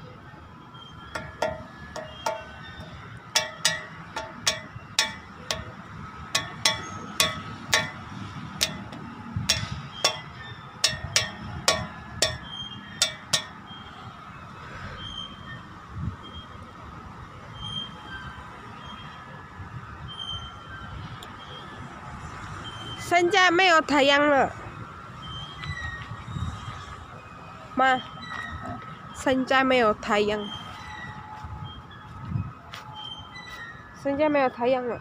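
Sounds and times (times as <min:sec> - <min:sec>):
sharp metallic clinks: 0:01.1 - 0:14.0.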